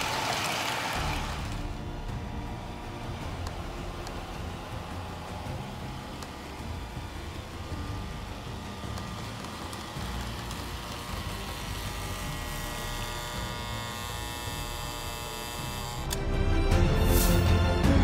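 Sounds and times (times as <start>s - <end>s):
music: 0.9s - 18.0s
toy locomotive motor whirring: 6.2s - 16.2s.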